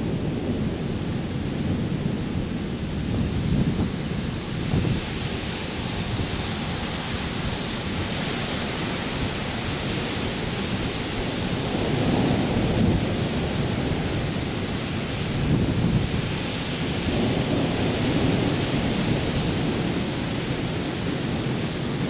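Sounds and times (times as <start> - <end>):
rain hissing: 0.0 - 22.0
distant thunder rumbling: 11.4 - 22.0.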